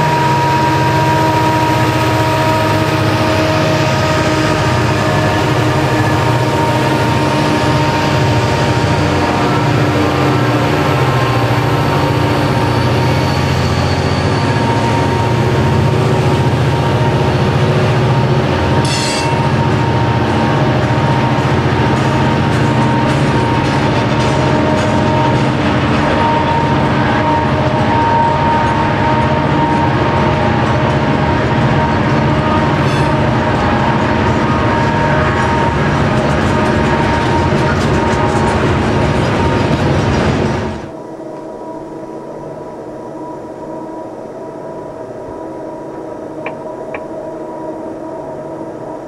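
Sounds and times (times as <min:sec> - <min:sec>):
train wheels clattering on rail: 0:00.0 - 0:40.9
diesel locomotive: 0:00.0 - 0:49.0
wheel squeal: 0:11.9 - 0:15.8.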